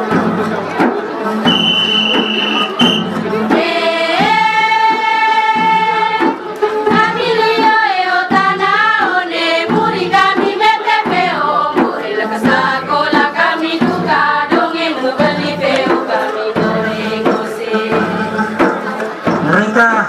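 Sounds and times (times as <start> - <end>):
percussion beat: 0.0 - 20.0
women singing together: 3.3 - 19.3.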